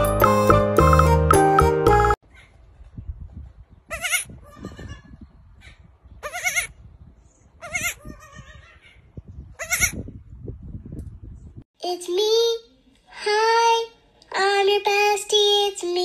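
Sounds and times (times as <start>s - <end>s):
goat kid bleating: 3.9s - 5.1s, 6.2s - 6.8s, 7.6s - 9.0s, 9.6s - 10.0s.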